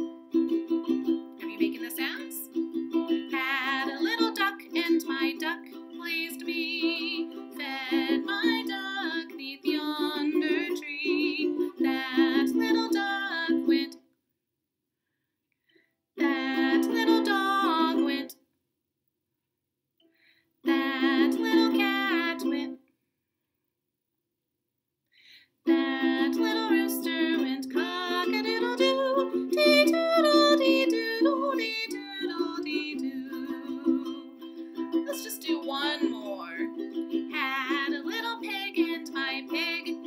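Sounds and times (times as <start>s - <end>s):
ukulele strumming: 0.0s - 13.9s, 16.2s - 18.3s, 20.7s - 22.7s, 25.7s - 40.0s
woman singing: 1.4s - 2.6s, 3.3s - 14.0s, 16.2s - 18.4s, 20.6s - 22.8s, 25.7s - 34.4s, 35.0s - 40.0s.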